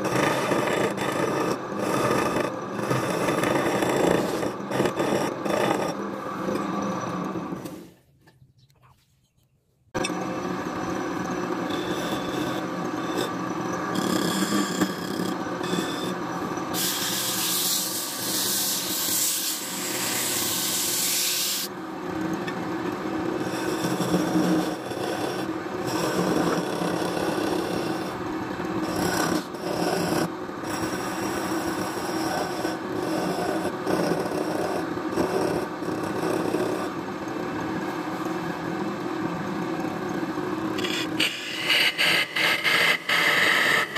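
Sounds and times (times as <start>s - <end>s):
wood lathe humming: 0.0s - 7.9s, 10.0s - 43.9s
turning tool scraping wood: 0.0s - 8.0s, 10.8s - 21.7s, 23.4s - 28.2s, 28.8s - 37.0s, 40.8s - 43.9s.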